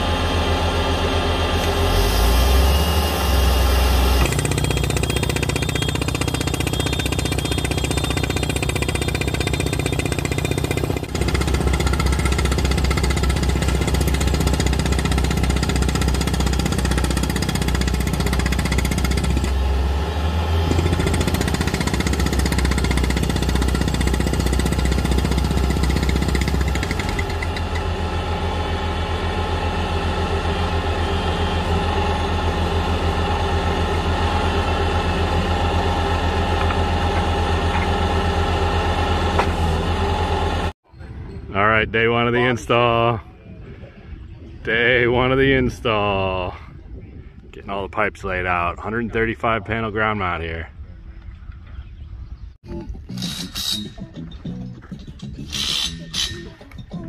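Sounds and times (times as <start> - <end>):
diesel engine droning: 0.0 - 41.2
drill head hammering chatter: 3.4 - 19.5, 20.7 - 27.9, 55.4 - 57.0.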